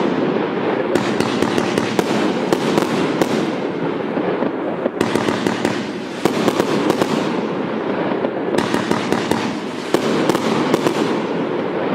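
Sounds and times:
fireworks crackling: 0.0s - 11.9s
fireworks sharp pops: 0.0s - 11.9s.

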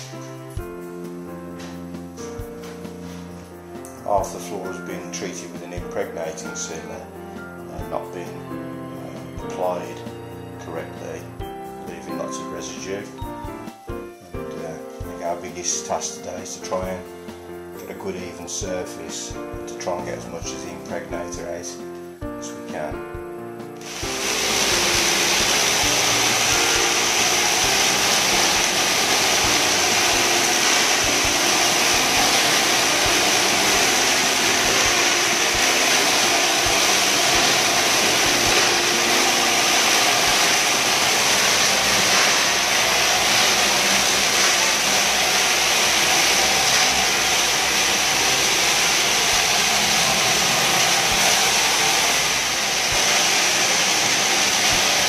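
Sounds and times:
suction and water spray rushing: 0.0s - 0.6s, 23.8s - 55.0s
high machine whine: 23.8s - 55.0s.

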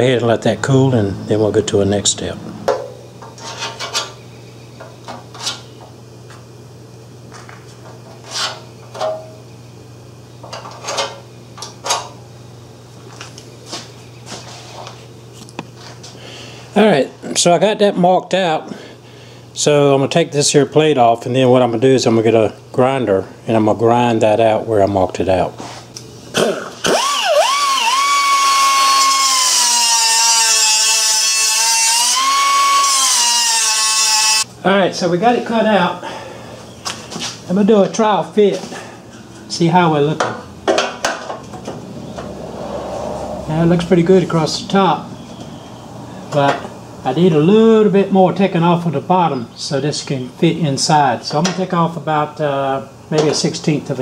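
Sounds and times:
steady low hum: 0.0s - 29.3s, 34.2s - 54.0s
angle grinder cutting steel: 26.4s - 34.5s.

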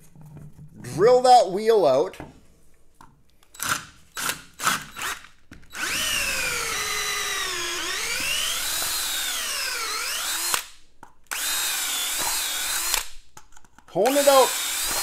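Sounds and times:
cordless drill whining: 3.5s - 10.7s, 11.3s - 13.1s, 14.0s - 15.0s.

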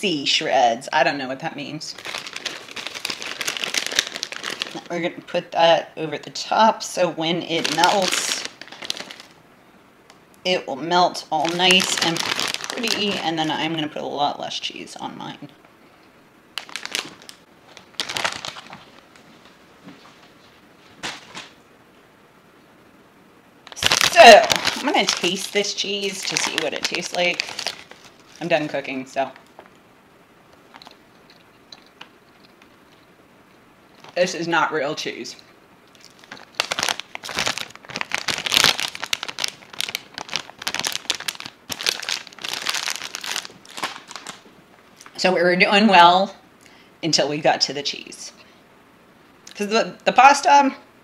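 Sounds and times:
plastic bag crinkling: 1.9s - 5.1s, 7.4s - 9.4s, 11.1s - 14.0s, 16.6s - 19.3s, 23.6s - 29.7s, 30.5s - 33.1s, 33.9s - 34.4s, 35.8s - 45.2s
hands rustling shredded cheese: 2.0s - 4.9s, 36.0s - 44.4s.

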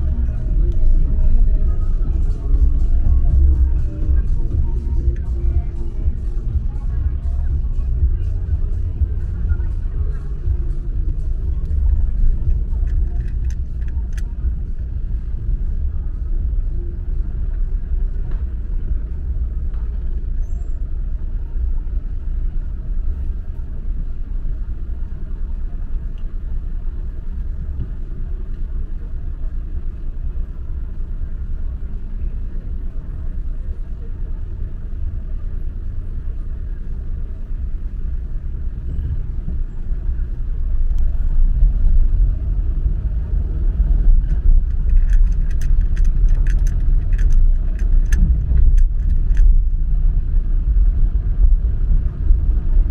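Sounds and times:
car engine and road rumble: 0.0s - 52.9s
sharp clicks: 44.2s - 49.5s.

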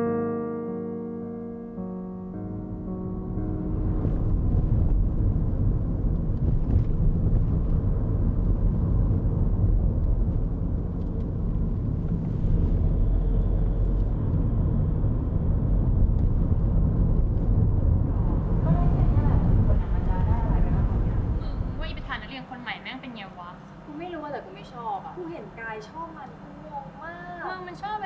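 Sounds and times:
road and engine rumble: 2.7s - 22.9s.

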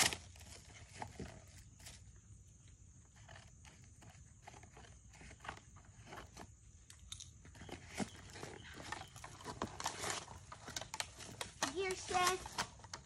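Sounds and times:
cardboard packaging rustling: 0.0s - 2.1s, 7.4s - 13.0s.

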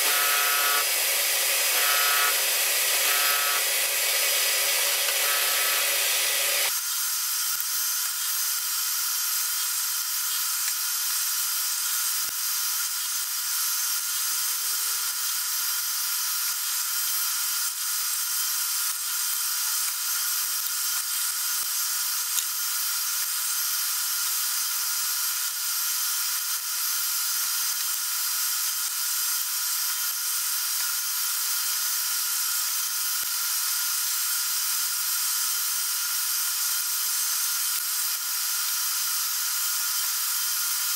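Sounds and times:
milling machine spindle whine: 0.0s - 6.7s.

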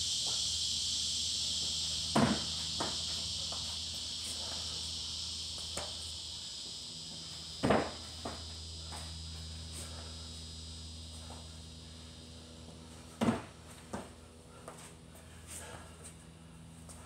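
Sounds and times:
steady high-pitched hiss: 0.0s - 17.0s
thuds of feet on rubber mats: 2.1s - 4.7s, 5.6s - 6.0s, 7.5s - 10.1s, 12.6s - 16.2s.

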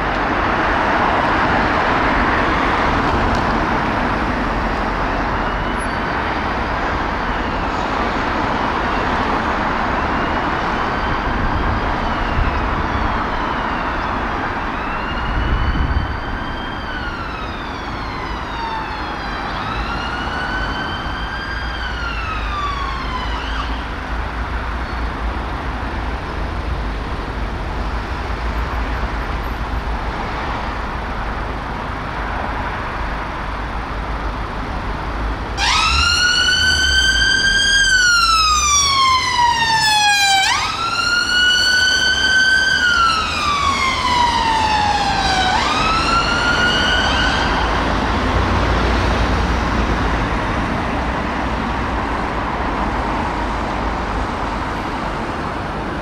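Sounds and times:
ambulance siren wailing: 0.0s - 25.3s, 35.4s - 50.5s
road traffic noise: 0.0s - 56.0s.

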